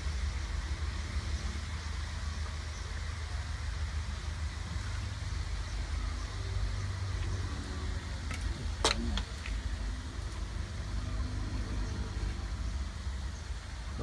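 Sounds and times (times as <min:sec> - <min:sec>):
low rumble and hiss: 0:00.0 - 0:14.0.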